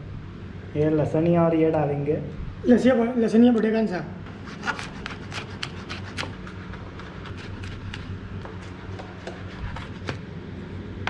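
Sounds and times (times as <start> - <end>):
knife chopping on plastic board: 4.6 - 10.3.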